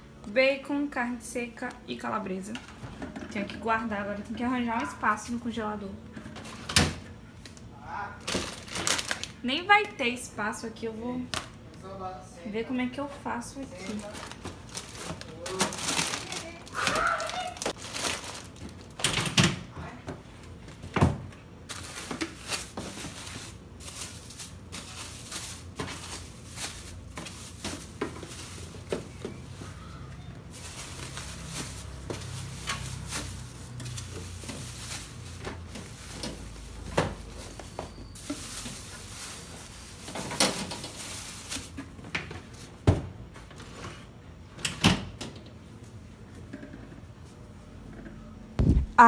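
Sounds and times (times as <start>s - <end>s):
bags clicking and bumping: 30.4s - 42.0s.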